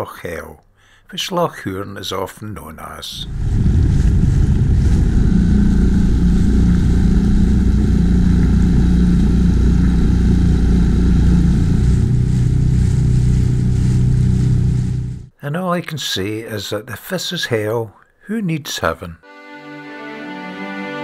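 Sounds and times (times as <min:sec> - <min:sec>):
outboard motor running: 0:03.4 - 0:15.3.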